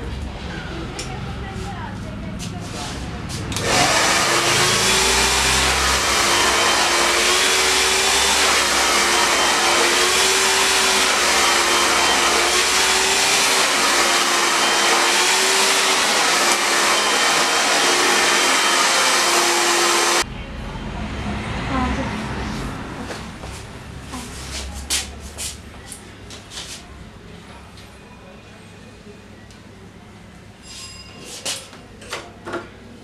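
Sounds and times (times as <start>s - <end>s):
hair dryer blowing: 3.5s - 20.3s.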